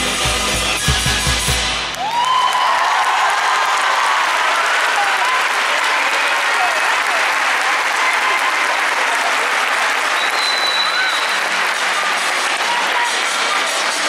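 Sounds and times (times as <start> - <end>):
audience applauding: 1.8 - 14.0
high whistle: 10.1 - 11.6.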